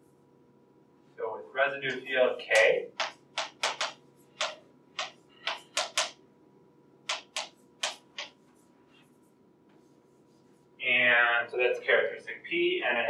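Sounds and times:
chalk tapping and scratching on blackboard: 0:01.9 - 0:06.2, 0:07.1 - 0:10.8.

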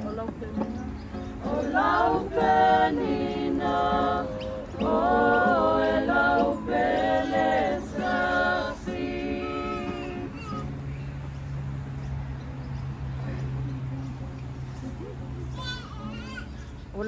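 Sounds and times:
group singing unaccompanied: 0:01.3 - 0:10.4.

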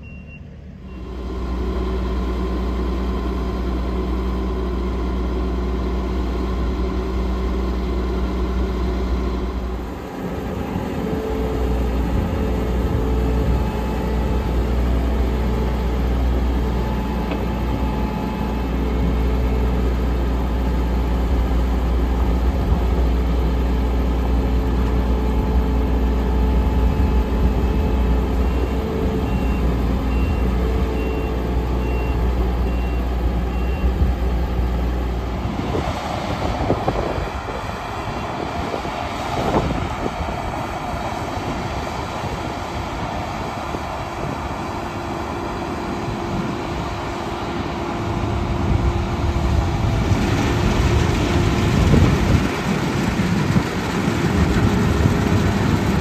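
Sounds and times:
reversing alarm beeping: 0:00.0 - 0:01.1, 0:27.5 - 0:34.0
diesel engine running: 0:00.0 - 0:56.0.

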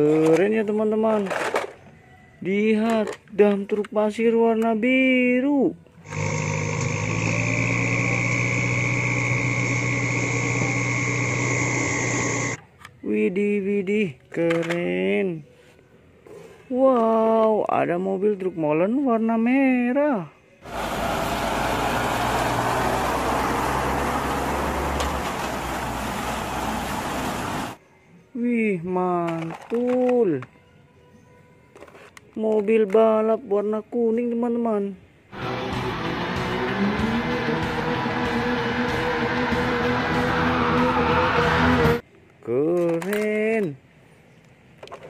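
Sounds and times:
hydraulic hoist whine: 0:06.0 - 0:12.6, 0:35.4 - 0:42.0
diesel engine running: 0:06.1 - 0:12.6, 0:20.7 - 0:27.8, 0:35.4 - 0:42.0
tyres hissing on wet road: 0:20.6 - 0:27.8.

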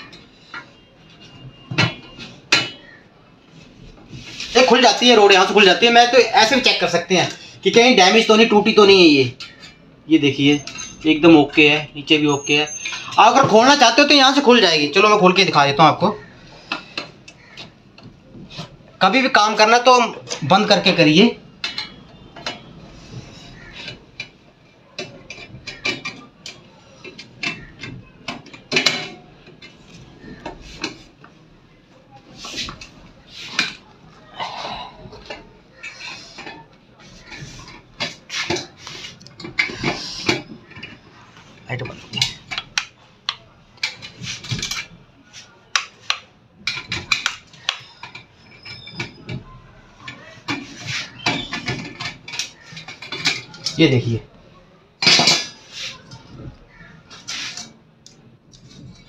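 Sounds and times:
clicks and metallic knocks: 0:21.6 - 0:22.8, 0:23.6 - 0:31.4.

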